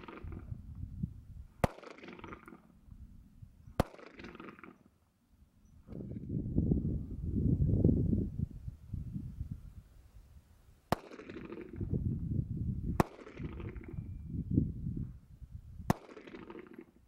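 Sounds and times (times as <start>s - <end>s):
pistol shots: 0.0s - 0.4s, 1.6s - 2.8s, 3.7s - 4.8s, 10.9s - 11.9s, 13.0s - 14.0s, 15.9s - 17.0s
low rumbling noise: 5.8s - 10.7s.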